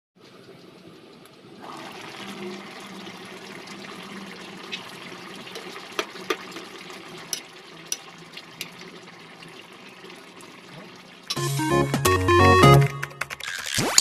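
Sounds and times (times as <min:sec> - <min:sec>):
broth bubbling in a pan: 0:00.2 - 0:11.4.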